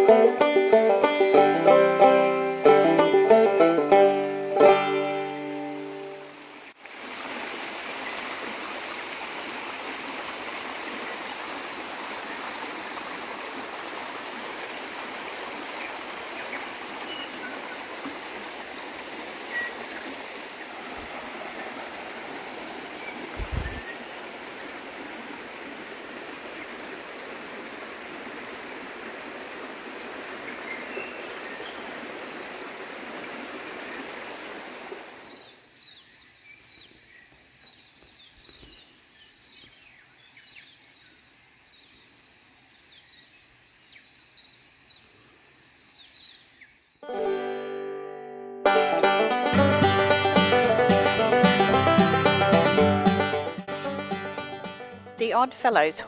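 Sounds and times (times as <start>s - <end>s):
stream flowing: 0.0s - 35.8s, 49.0s - 56.0s
bird chirping: 23.0s - 24.0s
soft low bump: 23.4s - 23.9s.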